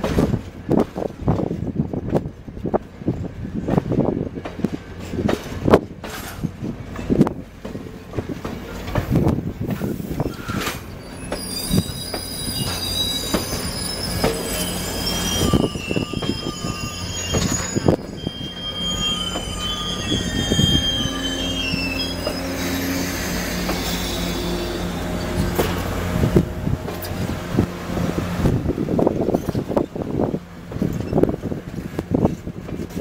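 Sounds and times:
train rumbling: 0.0s - 33.0s
train wheels squealing on rails: 4.6s - 33.0s.

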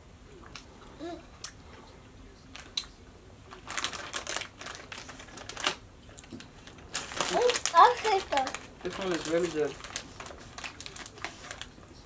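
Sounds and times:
plastic candy bag crinkling: 3.5s - 11.9s.

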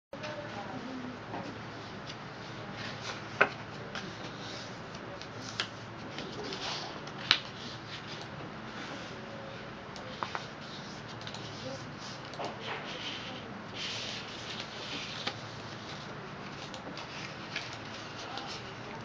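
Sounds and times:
paper rustling and crinkling: 2.6s - 8.2s, 10.1s - 19.0s.

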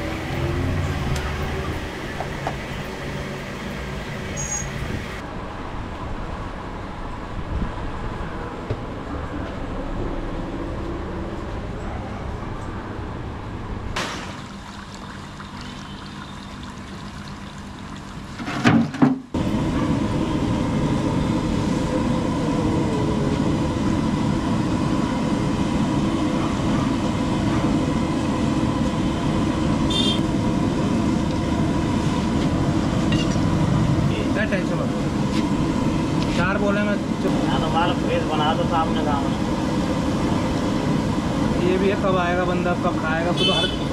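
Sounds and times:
gas burner flame roar: 0.0s - 5.3s, 19.3s - 43.9s.

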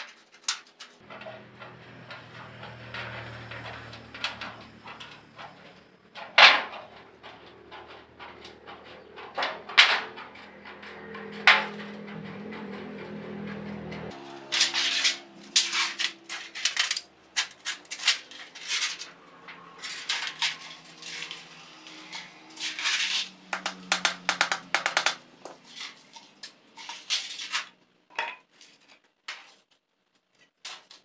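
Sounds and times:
sheet metal rattling: 0.0s - 27.8s
tin snips cutting sheet metal: 14.3s - 19.0s.

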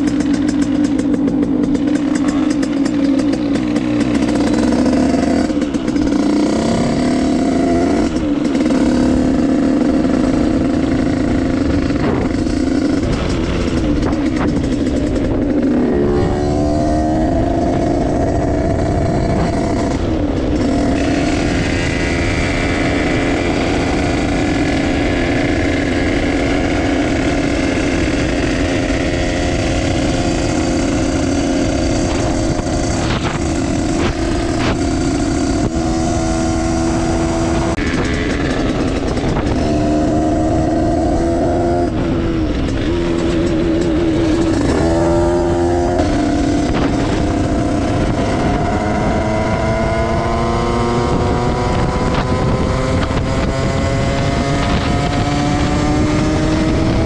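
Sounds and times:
two-stroke moped engine revving: 0.0s - 57.0s
wind rushing over microphone: 0.0s - 57.0s.

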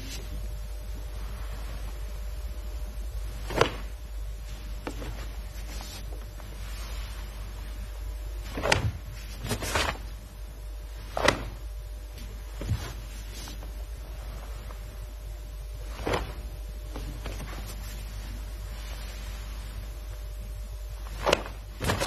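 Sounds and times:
steady low hum: 0.0s - 22.0s
uniform swishing snaps: 3.2s - 10.3s, 10.9s - 15.1s, 15.8s - 19.9s, 21.0s - 22.0s.

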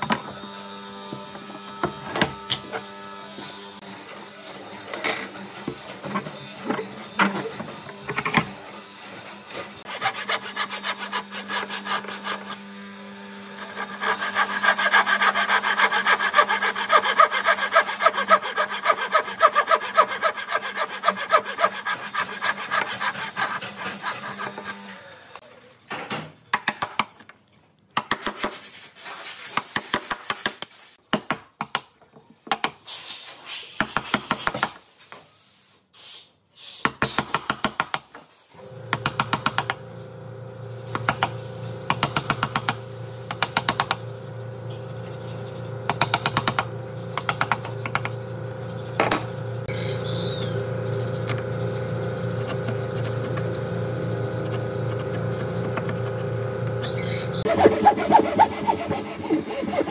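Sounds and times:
steady machine hum: 44.2s - 59.9s.

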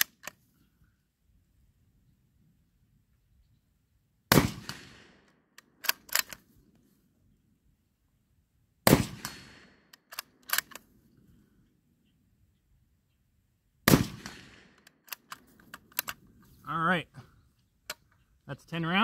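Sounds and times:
rifle shots: 4.3s - 6.3s, 8.8s - 10.8s, 13.8s - 15.3s
rifle bolt metallic clacks: 5.2s - 6.5s, 9.2s - 10.9s, 14.2s - 16.2s.

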